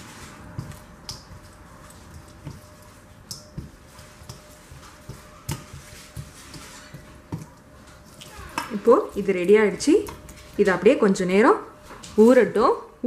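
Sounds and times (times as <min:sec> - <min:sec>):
wet squishing of hand mixing fish: 0:00.0 - 0:10.9
fingers tapping steel bowl: 0:00.5 - 0:08.7.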